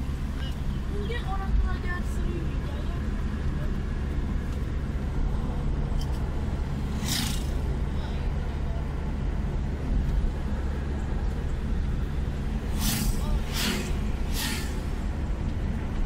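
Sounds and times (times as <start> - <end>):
car engine and road noise: 0.0 - 16.0
brief hiss: 12.7 - 14.9.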